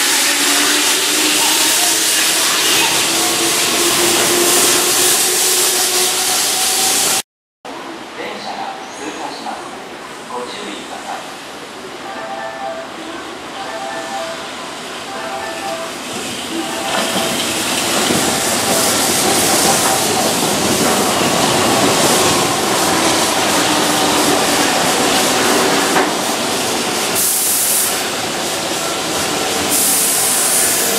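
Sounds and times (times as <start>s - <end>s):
train wheels rolling on rails: 0.0s - 7.2s, 15.9s - 30.9s
high hiss: 26.1s - 30.9s.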